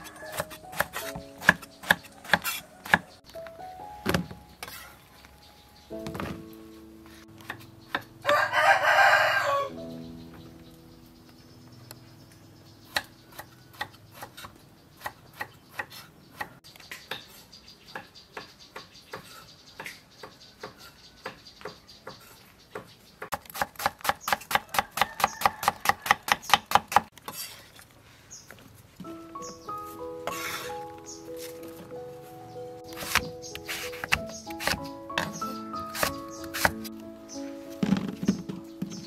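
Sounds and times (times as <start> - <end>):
knife chopping on wooden board: 0.2 - 3.1, 32.9 - 36.8.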